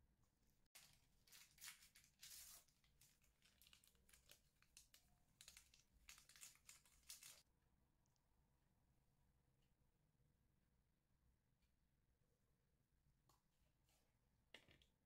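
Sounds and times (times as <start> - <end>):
sachet crinkling and tearing: 0.8 - 7.4.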